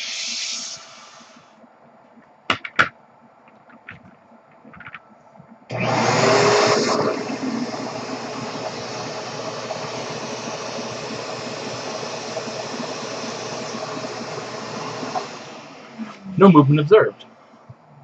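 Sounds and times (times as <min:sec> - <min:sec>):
vacuum cleaner running: 0:00.0 - 0:01.4, 0:05.7 - 0:17.0.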